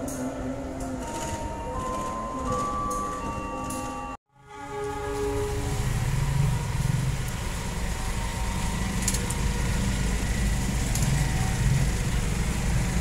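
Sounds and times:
truck engines running: 5.1s - 13.0s
motorcycle engines running: 5.6s - 13.0s.

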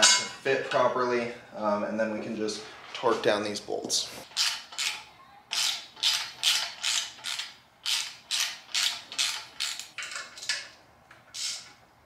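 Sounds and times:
ratchet wrench clicking: 4.4s - 10.2s.

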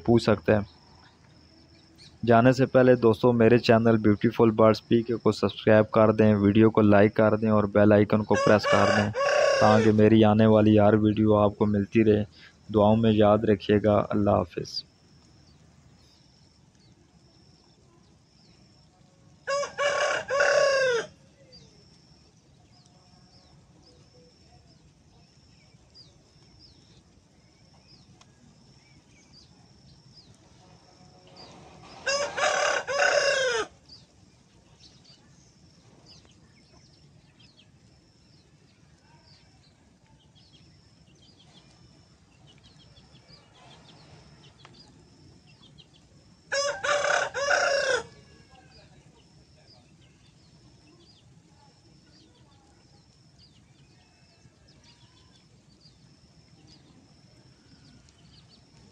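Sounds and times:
rooster crowing: 8.2s - 10.1s, 19.4s - 21.2s, 31.8s - 33.8s, 46.5s - 48.6s
faint high chirp: 48.2s - 58.9s.

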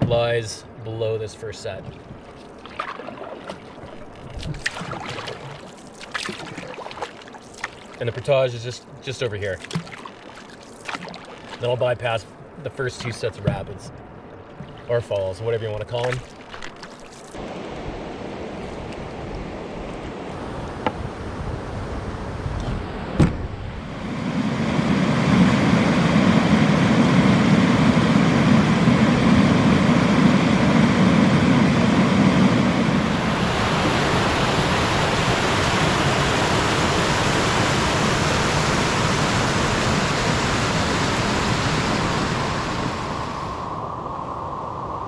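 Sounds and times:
water rushing over rocks: 1.6s - 17.8s.

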